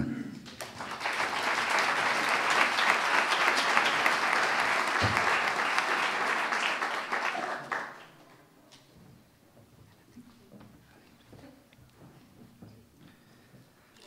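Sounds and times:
crowd applauding: 0.4s - 8.4s.

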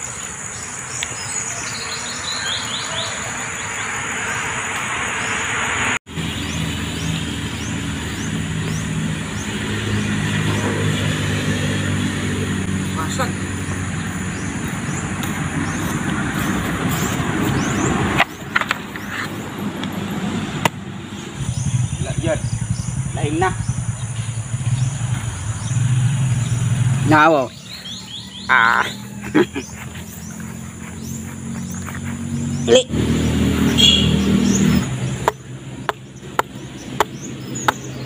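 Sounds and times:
birds chirping: 0.0s - 38.0s
vehicle engine running: 4.7s - 38.0s
high-pitched insect drone: 21.3s - 27.2s
sharp knocks: 35.2s - 37.9s.

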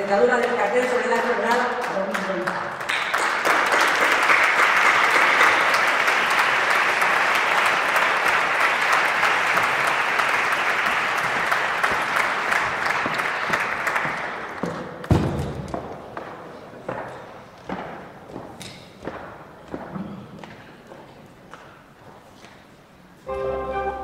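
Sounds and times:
audience applauding: 2.1s - 14.7s.

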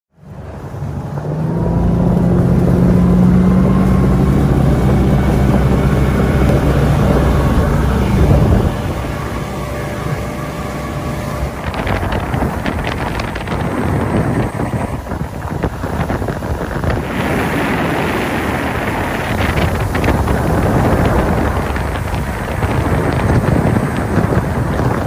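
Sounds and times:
motorboat engines: 0.1s - 25.0s
rushing water: 0.2s - 25.0s
wind buffeting microphone: 0.2s - 25.0s.

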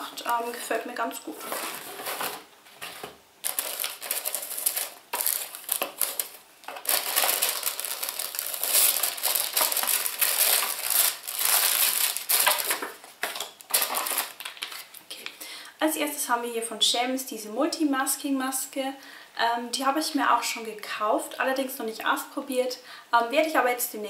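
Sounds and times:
packaging rustling and crinkling: 0.0s - 15.1s.

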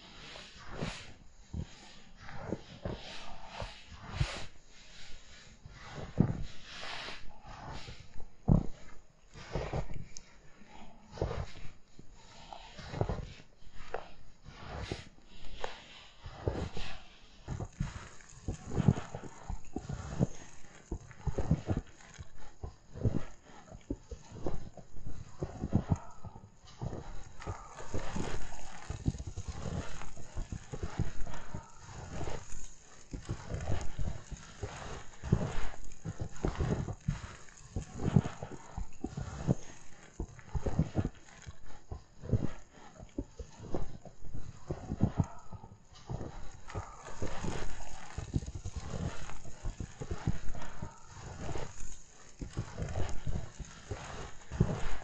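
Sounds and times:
footsteps crunching in snow: 10.6s - 55.0s.

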